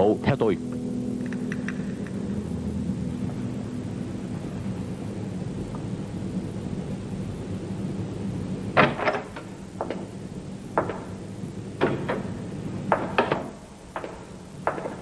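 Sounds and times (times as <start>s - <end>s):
wooden door knocks and clicks: 8.8s - 10.1s, 10.8s - 11.2s, 11.8s - 15.0s.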